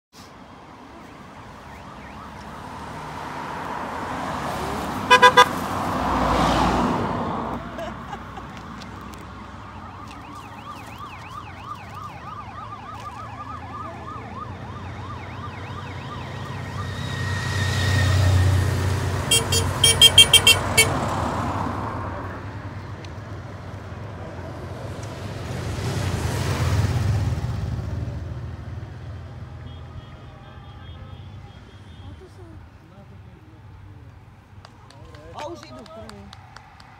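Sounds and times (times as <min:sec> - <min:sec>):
car passing by: 0:00.2 - 0:29.6
motorcycles passing by: 0:00.9 - 0:09.8, 0:12.9 - 0:29.7
warbling siren: 0:01.5 - 0:02.5, 0:09.8 - 0:18.2
short horn beeps: 0:05.1 - 0:05.5, 0:19.3 - 0:20.9.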